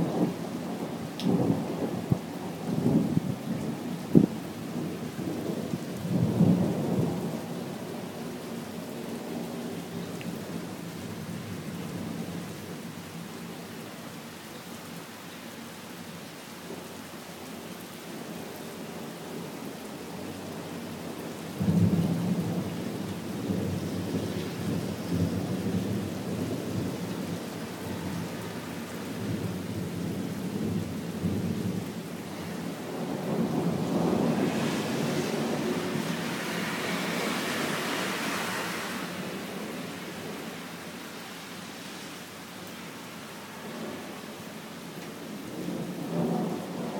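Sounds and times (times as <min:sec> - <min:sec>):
steady rain: 0:00.0 - 0:46.9.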